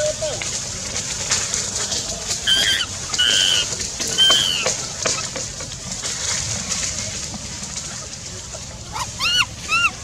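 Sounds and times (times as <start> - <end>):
high-pitched animal squeaks: 2.5 - 5.3, 8.9 - 10.0.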